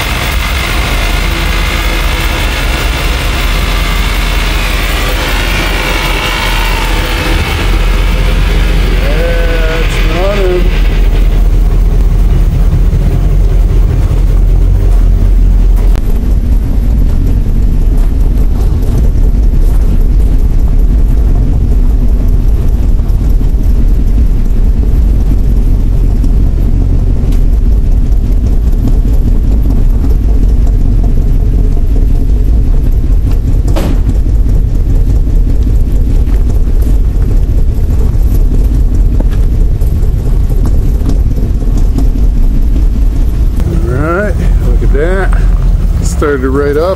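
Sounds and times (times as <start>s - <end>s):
car engine idling: 0.0s - 16.6s, 37.7s - 46.9s.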